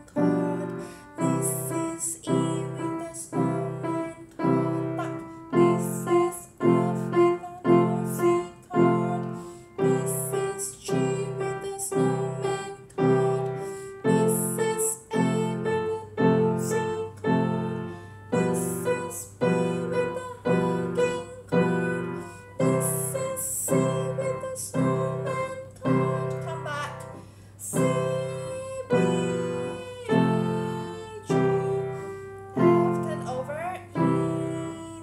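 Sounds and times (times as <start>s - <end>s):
upright piano scale with chords: 0.0s - 35.0s.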